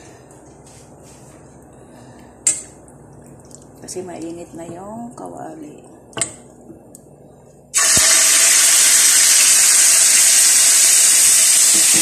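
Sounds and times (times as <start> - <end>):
chicken sizzling in oil: 7.8 - 12.0.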